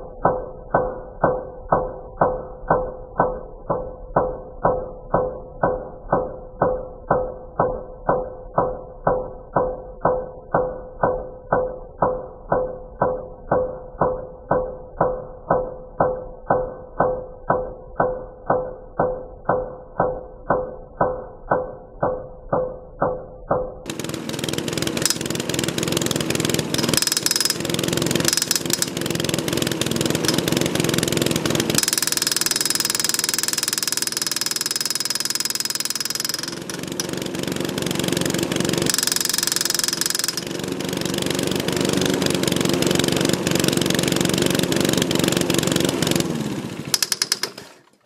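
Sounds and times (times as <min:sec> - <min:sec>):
lawn mower engine running: 0:23.9 - 0:48.0.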